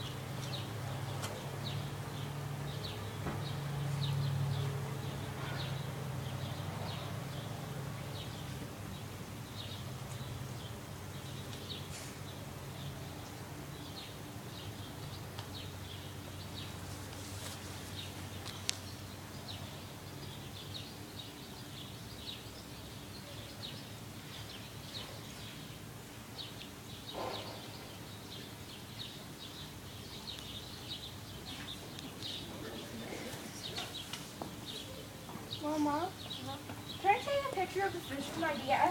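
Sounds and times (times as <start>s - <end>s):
small birds chirping: 0.0s - 38.9s.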